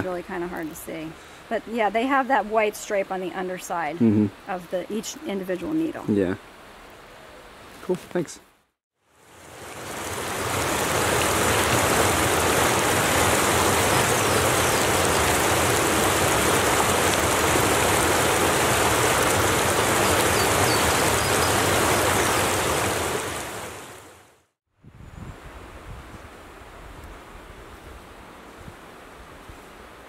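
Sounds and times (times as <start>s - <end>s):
brook rushing over rocks: 9.5s - 23.6s.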